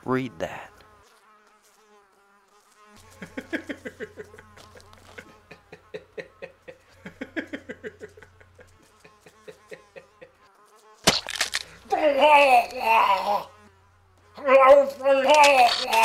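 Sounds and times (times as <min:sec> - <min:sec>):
man laughing: 0:03.1 - 0:10.5, 0:11.7 - 0:13.5, 0:14.4 - 0:16.0.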